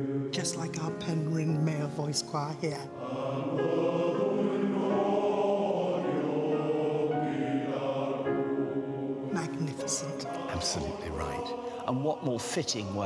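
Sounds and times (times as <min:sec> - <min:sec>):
male choir singing in harmony: 0:00.0 - 0:13.0.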